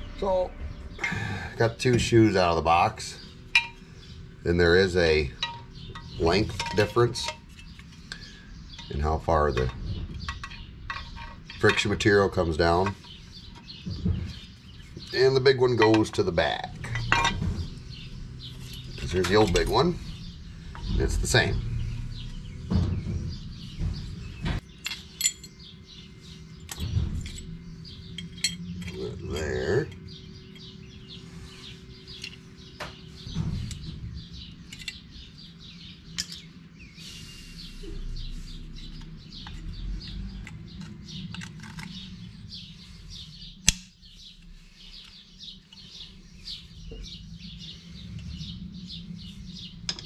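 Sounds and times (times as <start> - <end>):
birds chirping: 0.0 - 50.0
metal brake parts clinking: 3.5 - 3.8, 5.3 - 13.2, 15.7 - 25.8, 26.6 - 30.7, 33.6 - 35.2, 36.2 - 36.5
sharp click: 43.6 - 43.9.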